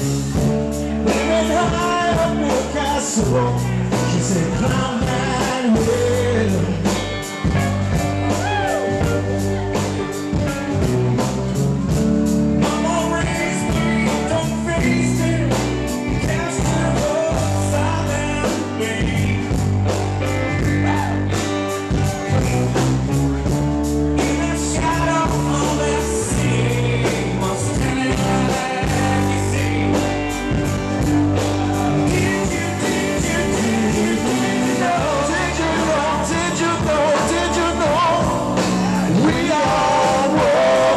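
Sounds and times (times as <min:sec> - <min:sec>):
bass guitar: 0:00.0 - 0:40.9
electric and acoustic guitars: 0:00.0 - 0:40.9
drum beat: 0:07.0 - 0:13.9.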